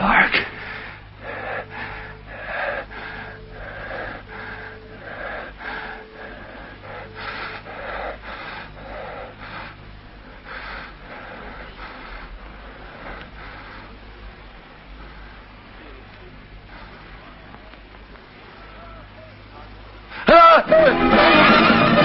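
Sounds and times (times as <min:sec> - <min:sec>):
low steady hum: 0:00.0 - 0:22.0
man panting heavily with wheeze: 0:00.1 - 0:17.5.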